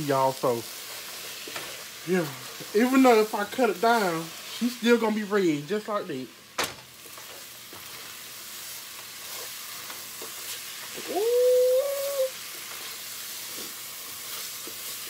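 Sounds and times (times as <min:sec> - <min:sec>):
meat sizzling in a pot: 0:00.0 - 0:15.0
loud high cry: 0:11.0 - 0:12.4.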